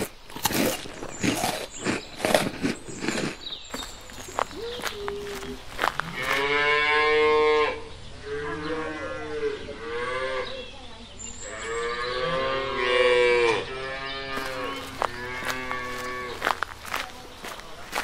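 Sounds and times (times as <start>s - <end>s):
cows mooing: 6.0s - 10.5s, 11.5s - 16.5s.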